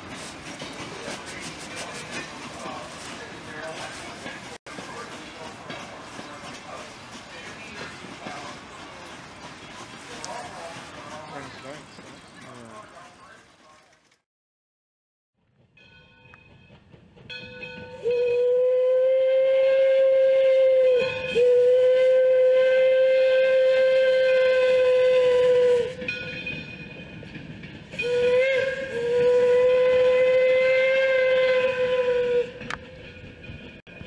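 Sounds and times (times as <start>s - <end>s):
train running along track: 0.0s - 14.2s, 15.4s - 34.0s
steam whistle blasts: 17.9s - 26.1s, 28.0s - 32.7s.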